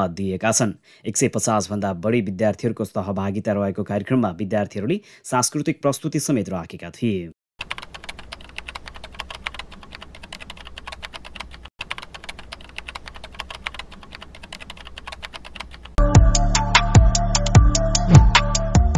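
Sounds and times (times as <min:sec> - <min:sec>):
computer keyboard typing: 0:07.6 - 0:16.0
electronic music with heavy beat: 0:16.0 - 0:18.9.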